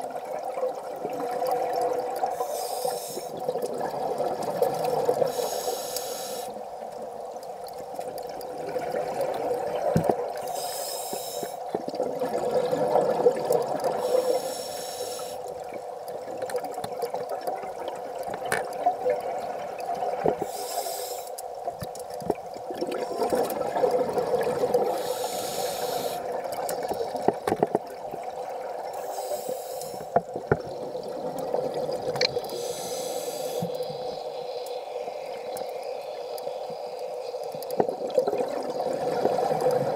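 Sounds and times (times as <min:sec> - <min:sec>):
diver breathing through regulator: 0:02.3 - 0:03.4, 0:05.3 - 0:06.6, 0:10.4 - 0:11.6, 0:14.0 - 0:15.4, 0:20.4 - 0:21.4, 0:24.8 - 0:26.3, 0:29.0 - 0:30.2, 0:32.5 - 0:34.0
exhale bubbling underwater: 0:11.9 - 0:14.4, 0:22.6 - 0:29.1, 0:30.4 - 0:39.9.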